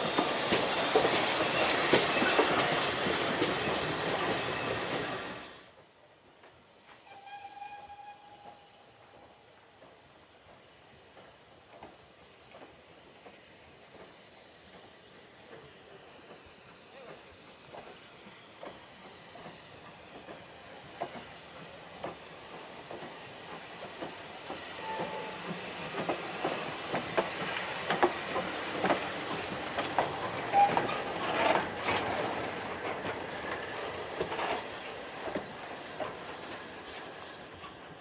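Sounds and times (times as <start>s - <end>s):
steam hissing: 0.0s - 5.8s, 6.4s - 38.0s
locomotive wheels clanking: 22.0s - 36.5s.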